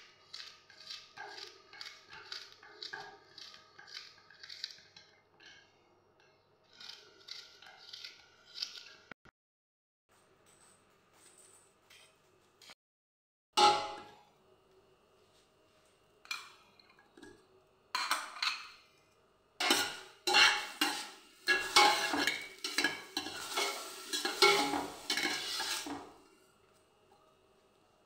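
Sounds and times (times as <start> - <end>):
metal spoon stirring in metal pot: 19.6 - 26.0.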